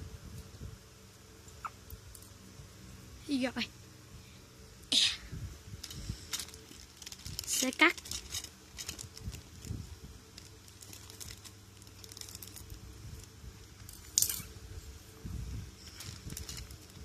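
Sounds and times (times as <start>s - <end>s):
plastic crinkling: 5.8s - 14.5s, 15.7s - 17.0s
scissors cutting plastic bag: 6.3s - 9.6s.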